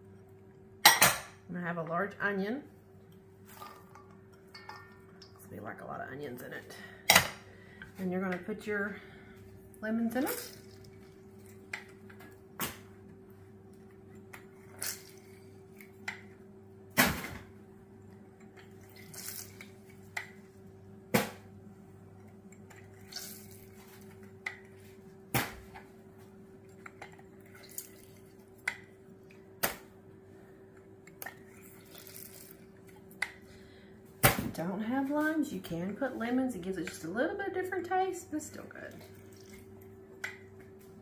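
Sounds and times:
juice dripping into bowl: 10.4 - 12.5, 18.1 - 20.4, 26.7 - 29.6, 30.8 - 33.9, 39.0 - 40.8.

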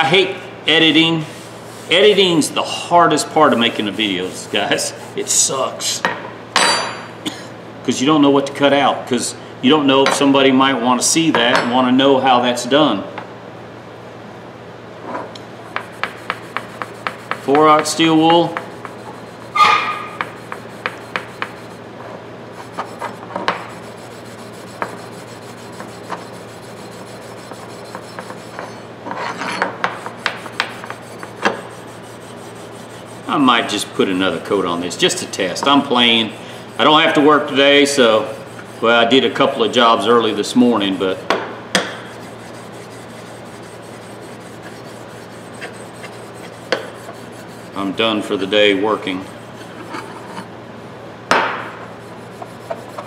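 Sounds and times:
steel wool scrubbing metal: 0.7 - 5.6, 15.7 - 21.8, 22.5 - 41.2, 41.9 - 50.5, 51.9 - 53.0.

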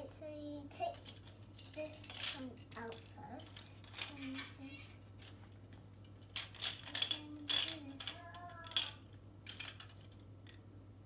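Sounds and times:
plastic toy pieces clicking: 6.3 - 10.6.

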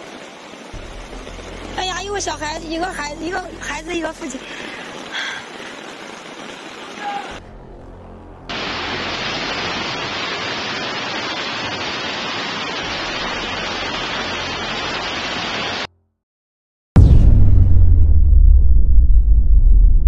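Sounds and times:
floodwater rushing hiss: 0.0 - 7.4, 8.5 - 15.9
deep booming rumble: 17.0 - 20.0.

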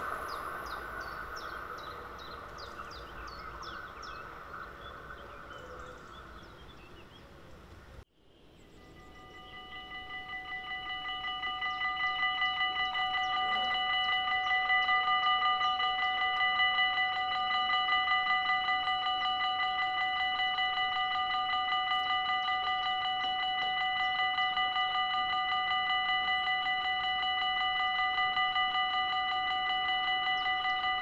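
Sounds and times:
level crossing bells ringing: 8.9 - 31.0.

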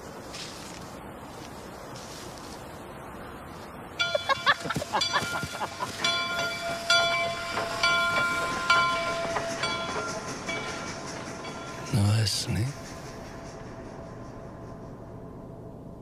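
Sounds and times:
train brakes squealing: 4.1 - 15.6.

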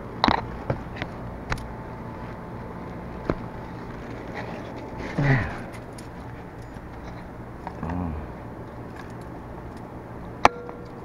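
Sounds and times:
faint steady tone: 4.6 - 11.0.

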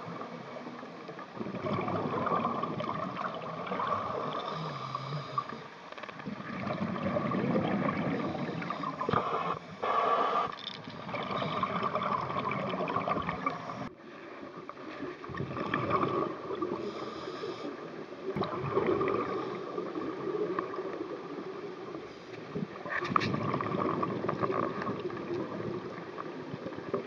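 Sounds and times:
exhaled bubbles gurgling: 0.0 - 27.0
diver regulator breathing: 3.8 - 6.0, 8.0 - 12.0, 13.4 - 13.9, 16.6 - 17.9.

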